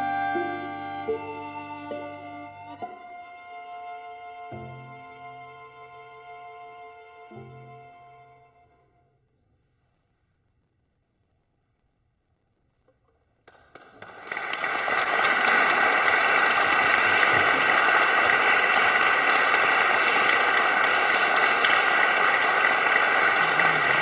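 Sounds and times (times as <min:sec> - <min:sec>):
audience applauding: 0:13.5 - 0:24.0.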